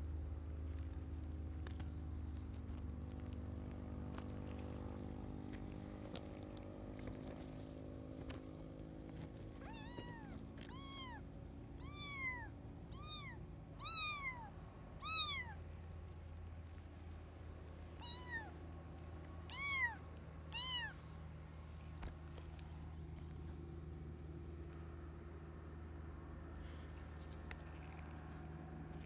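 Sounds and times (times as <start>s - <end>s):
kitten meowing: 9.6s - 11.2s, 11.8s - 15.6s, 18.0s - 18.6s, 19.5s - 21.0s.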